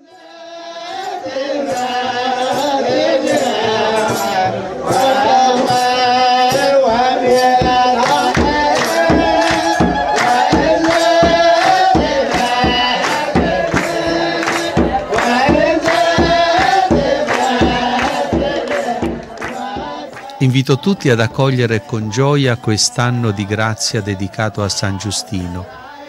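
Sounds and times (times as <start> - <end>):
steady drum beat: 7.3 - 25.3.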